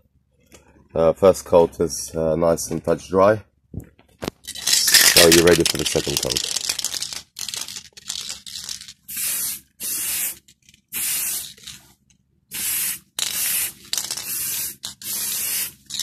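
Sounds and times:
aerosol spray can hissing: 9.1 - 11.7, 12.6 - 16.0.

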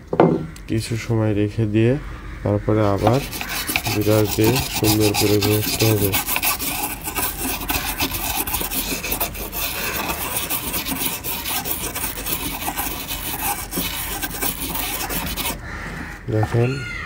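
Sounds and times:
small brush scrubbing: 2.8 - 15.6.

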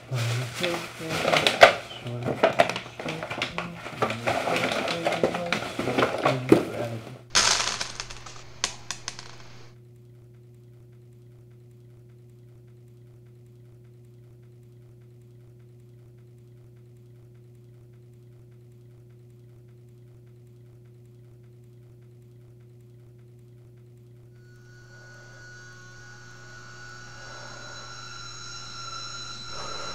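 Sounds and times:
steady low hum: 24.3 - 29.9.

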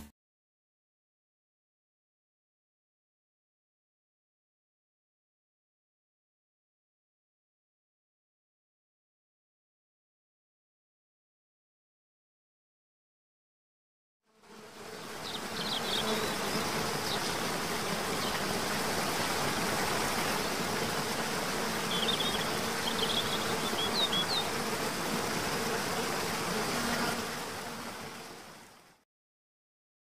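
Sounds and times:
high bird chirps: 21.9 - 24.5.

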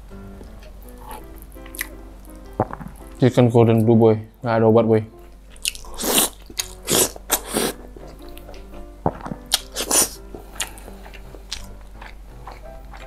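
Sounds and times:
background music: 0.0 - 13.0
wet biting and chewing: 0.4 - 3.2, 5.5 - 13.0.

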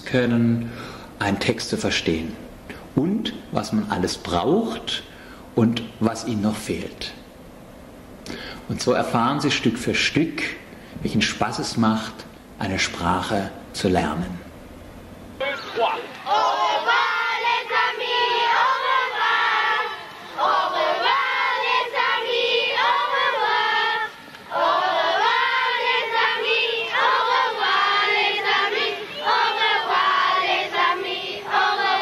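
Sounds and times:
children singing together: 16.2 - 32.0.

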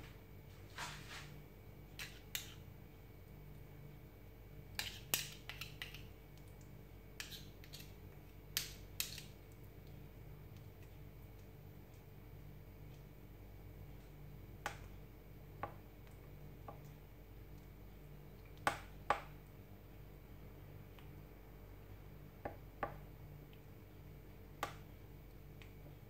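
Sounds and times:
faint low hum: 0.0 - 26.0
spoon stirring thick porridge: 1.9 - 2.7, 4.7 - 12.1.

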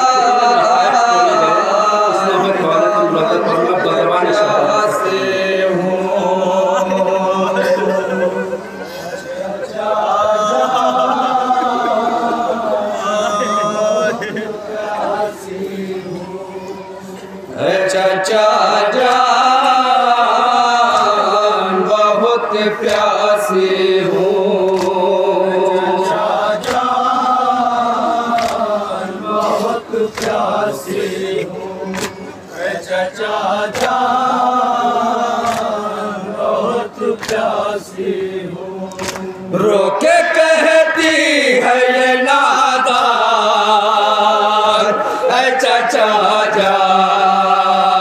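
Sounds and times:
men chanting through microphones: 0.0 - 48.0
chest-beating slaps: 37.2 - 37.5, 38.9 - 39.3.

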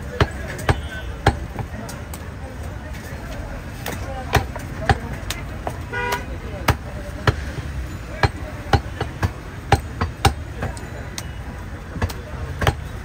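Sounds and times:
cleaver chopping meat on wood: 0.0 - 1.8, 3.8 - 5.8, 6.6 - 7.5, 8.2 - 10.8, 11.9 - 13.0.

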